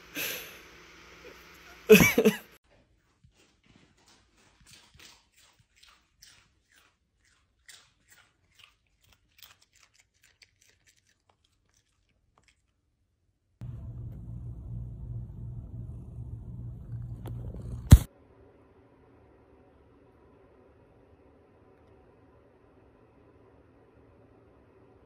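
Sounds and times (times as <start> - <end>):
dog crunching snack chips: 4.6 - 12.8
steady low hum: 13.6 - 25.0.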